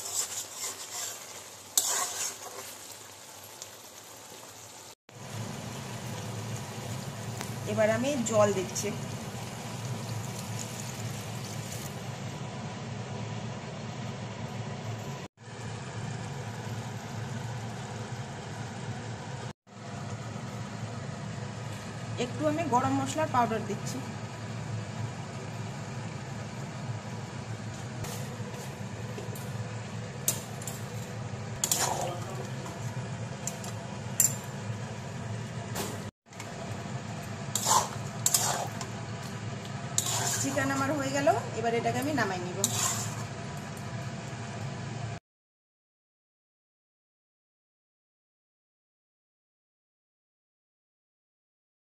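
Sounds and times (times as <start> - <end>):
curry cooking over gas burner: 0.0 - 45.2
metal utensil clinking on pot: 33.5 - 34.5.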